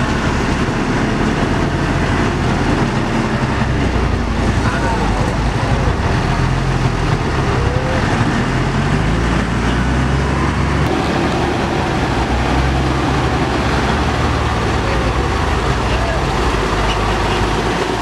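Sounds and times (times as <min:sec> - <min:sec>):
heavy diesel engines under load: 0:00.0 - 0:18.0.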